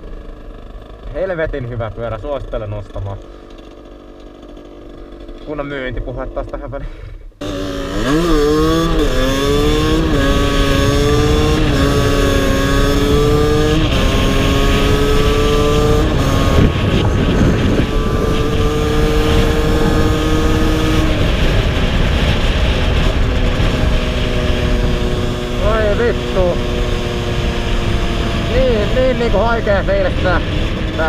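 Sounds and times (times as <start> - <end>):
two-stroke engine pulling: 7.4 - 31.0.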